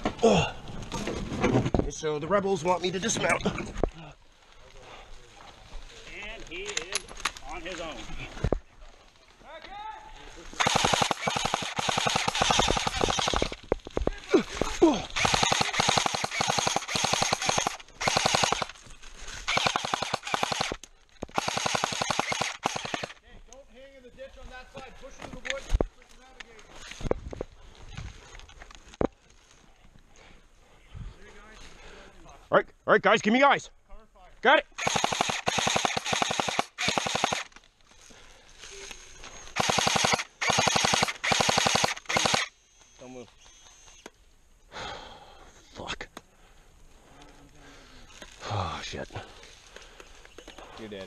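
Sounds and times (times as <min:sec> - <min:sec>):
airsoft guns firing on full auto: 0:10.6 - 0:13.6, 0:15.1 - 0:18.8, 0:19.4 - 0:23.2, 0:34.8 - 0:37.5, 0:39.6 - 0:42.5.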